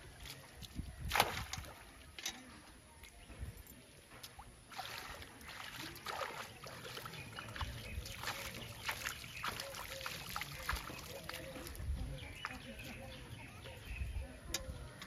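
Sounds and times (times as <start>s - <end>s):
hands splashing in shallow water: 0.2s - 1.8s, 4.3s - 11.8s.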